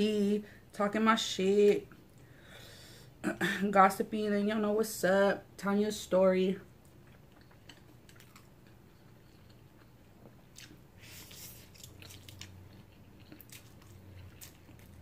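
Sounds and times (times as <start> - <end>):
soft chewing and mouth clicks: 6.7 - 15.0.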